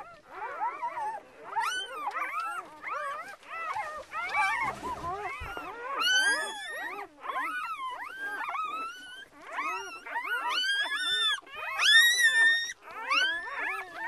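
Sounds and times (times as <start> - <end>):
puppies crying and squealing: 0.0 - 14.0.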